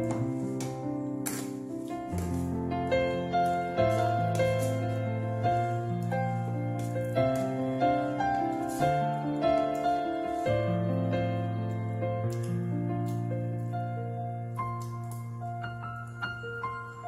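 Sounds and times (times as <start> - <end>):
slow piano tune: 0.0 - 17.0.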